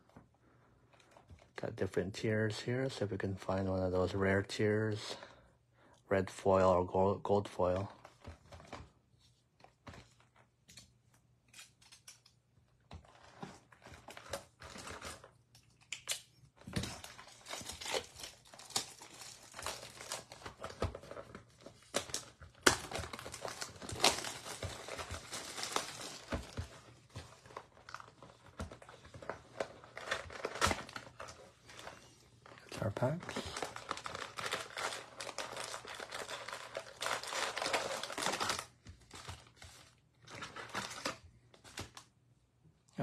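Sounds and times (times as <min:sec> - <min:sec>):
plastic wrapping crinkling and tearing: 0:13.0 - 0:42.0.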